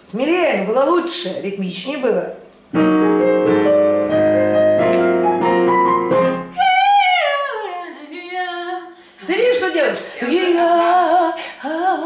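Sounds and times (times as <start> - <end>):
electric piano jazz chords: 2.7 - 6.6
woman singing falling phrase: 6.5 - 12.0.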